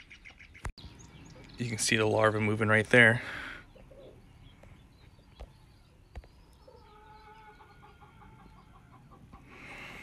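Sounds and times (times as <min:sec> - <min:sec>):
chickens clucking: 0:03.6 - 0:10.0.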